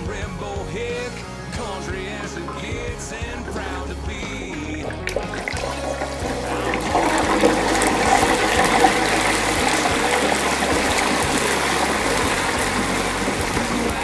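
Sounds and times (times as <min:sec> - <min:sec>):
oil bubbling and sizzling: 0:03.4 - 0:14.0.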